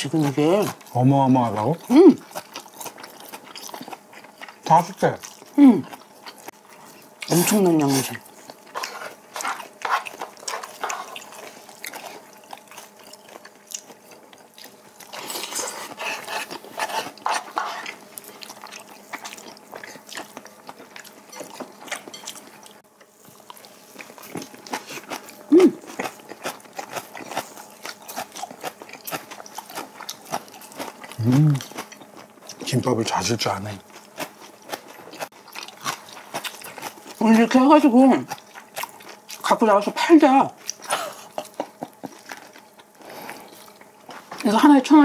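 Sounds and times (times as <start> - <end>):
chewing and biting food: 0.0 - 39.9, 40.5 - 44.6
person humming: 25.5 - 25.9, 31.2 - 31.6.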